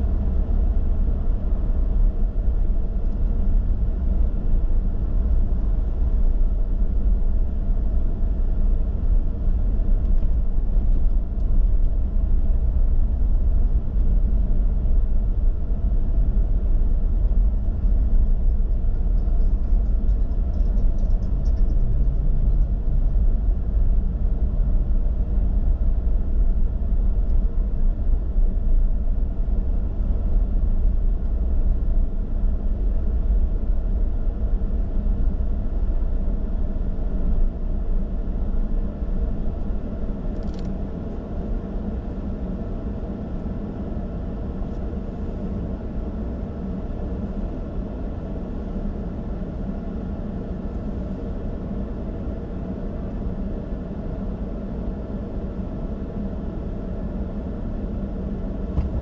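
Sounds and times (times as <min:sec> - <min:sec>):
car engine rumble: 0:00.0 - 0:59.0
road noise: 0:58.6 - 0:59.0.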